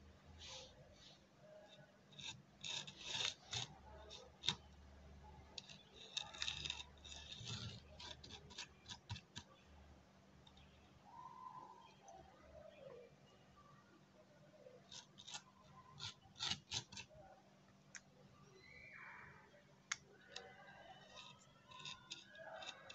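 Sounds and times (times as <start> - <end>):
hands scraping on a board: 2.1 - 4.6, 5.6 - 9.5, 14.9 - 17.1, 21.1 - 22.9.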